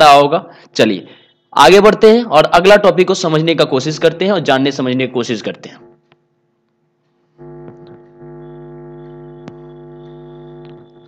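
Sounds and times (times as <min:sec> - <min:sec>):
electronic buzzing drone: 0:07.4 - 0:11.0.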